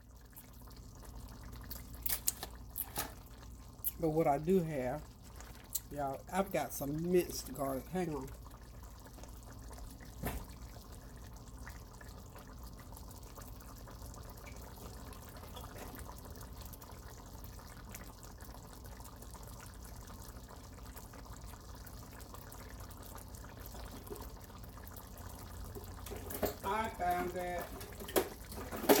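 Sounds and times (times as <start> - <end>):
sauce bubbling in skillet: 0.0 - 29.0.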